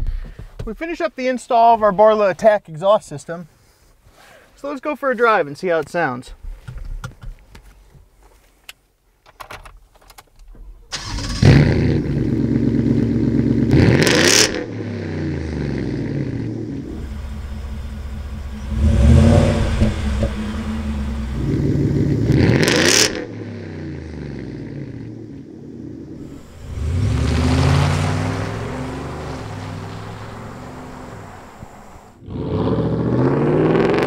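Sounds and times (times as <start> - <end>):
truck engine starting and revving: 10.9 - 34.0
engine idling: 16.8 - 22.4.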